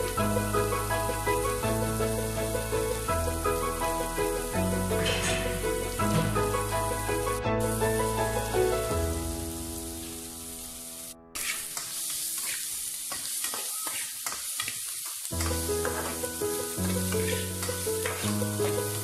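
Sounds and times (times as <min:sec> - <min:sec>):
background music: 0:00.0 - 0:11.3, 0:15.4 - 0:19.0
food sizzling in a wok: 0:00.0 - 0:19.0
metal ladle scraping a pan: 0:04.9 - 0:06.5, 0:11.4 - 0:14.8, 0:15.4 - 0:16.2, 0:16.8 - 0:19.0.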